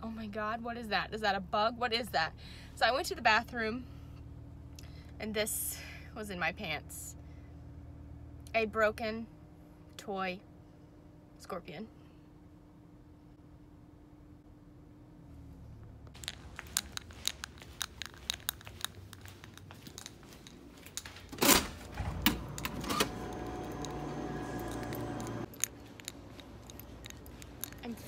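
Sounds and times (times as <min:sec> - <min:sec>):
steady hum: 0:01.3 - 0:28.0
footsteps: 0:16.2 - 0:28.0.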